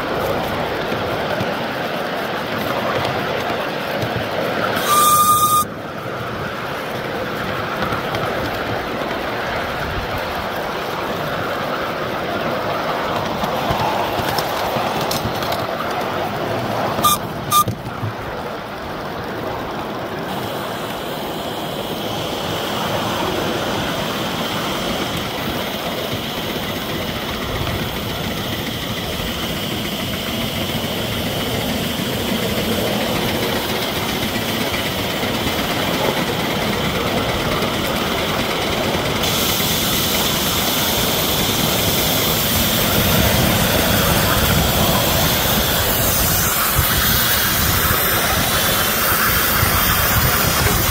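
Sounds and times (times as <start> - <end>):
steam hissing: 0.0 - 7.9, 16.4 - 17.7, 19.9 - 50.9
steam locomotive engine and wheels: 0.0 - 50.9.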